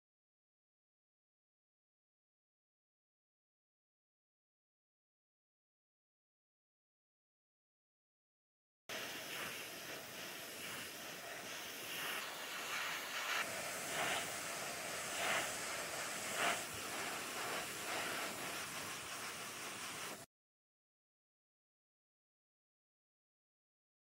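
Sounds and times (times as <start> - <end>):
airbrush hiss of compressed air: 8.9 - 20.3.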